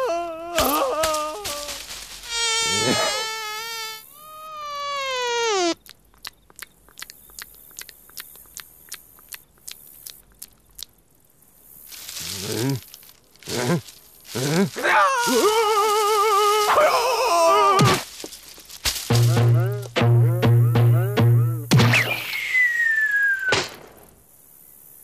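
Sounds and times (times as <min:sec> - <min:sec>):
cartoon mosquito buzzing whine: 0:01.5 - 0:05.8.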